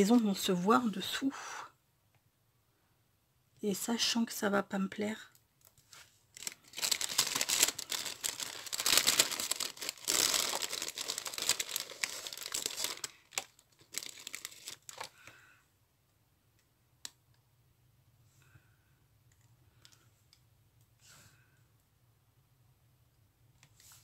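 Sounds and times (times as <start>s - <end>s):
plastic bag crinkling: 5.9s - 15.3s.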